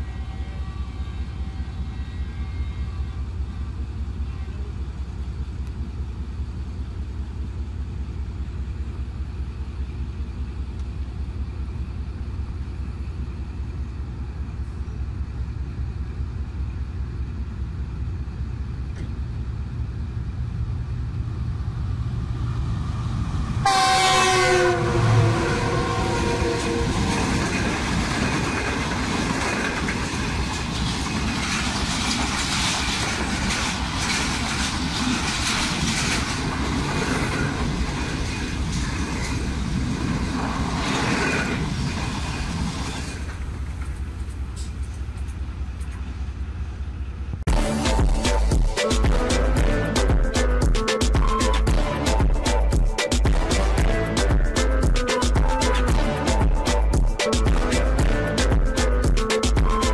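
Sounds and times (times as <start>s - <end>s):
train horn blast: 0.0s - 4.7s, 23.6s - 27.8s, 47.5s - 50.4s, 51.7s - 59.8s
diesel locomotive rumble: 0.0s - 59.9s
train wheels clattering over rails: 26.2s - 46.1s.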